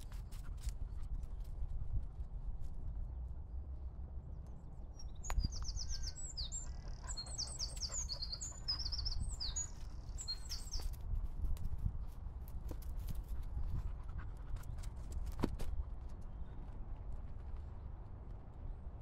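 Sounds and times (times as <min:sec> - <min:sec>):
songbird singing trills: 0:04.8 - 0:11.0.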